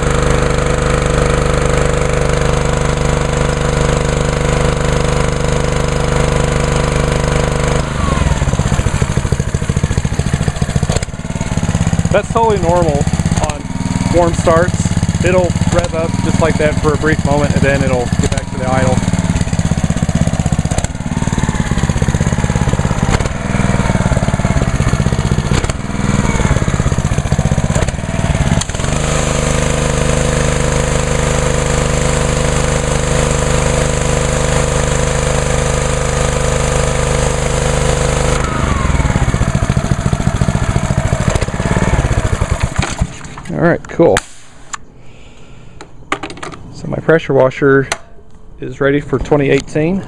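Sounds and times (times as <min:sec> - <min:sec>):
pressure washer engine running: 0:00.0 - 0:43.5.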